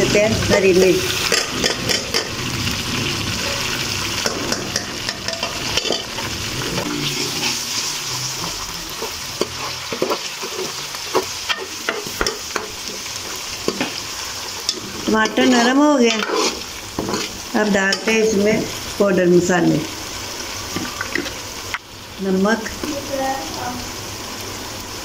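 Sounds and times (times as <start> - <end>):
vegetables sizzling in hot oil: 0.0 - 25.0
spoon stirring and scraping pan: 0.5 - 2.4, 3.4 - 19.0, 20.2 - 21.8.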